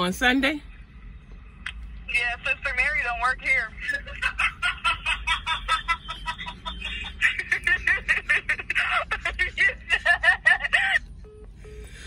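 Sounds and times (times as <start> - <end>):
woman laughing hard: 3.9 - 11.0.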